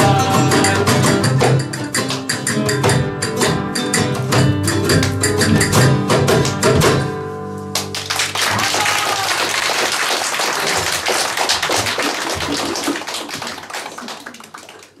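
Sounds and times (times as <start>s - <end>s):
audience applauding: 7.8s - 15.0s.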